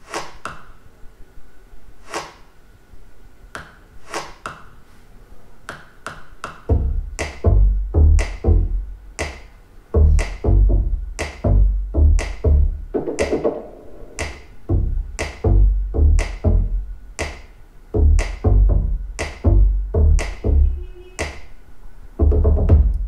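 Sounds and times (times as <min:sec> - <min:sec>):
electronic music percussive hits: 0:06.6 - 0:21.5
deep bass hits: 0:06.7 - 0:09.0, 0:10.0 - 0:17.0, 0:18.0 - 0:20.8, 0:22.2 - 0:23.0.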